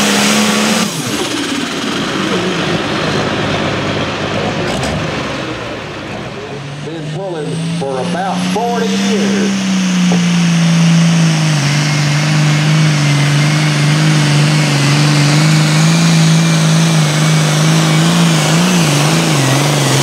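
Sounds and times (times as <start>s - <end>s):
diesel engine running under load: 0.0s - 20.0s.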